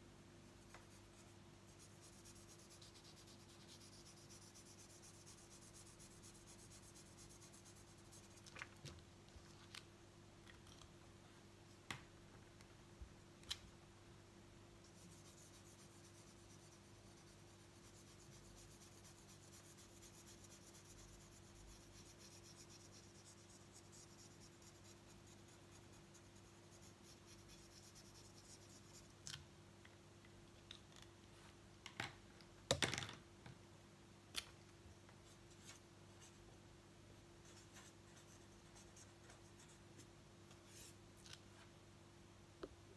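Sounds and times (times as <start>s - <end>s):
low steady hum: 0.0s - 42.9s
marker rubbing on paper: 0.8s - 8.4s, 14.9s - 29.1s.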